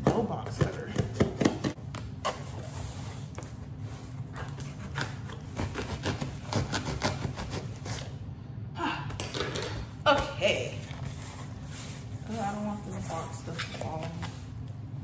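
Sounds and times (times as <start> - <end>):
low steady hum: 0.0 - 15.0
scissors cutting box tape: 4.4 - 8.0.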